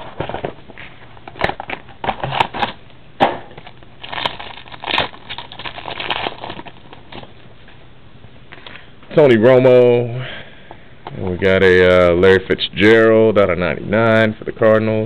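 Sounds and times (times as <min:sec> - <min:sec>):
packaging crinkling and tearing: 0:00.0 - 0:02.8, 0:03.5 - 0:07.3.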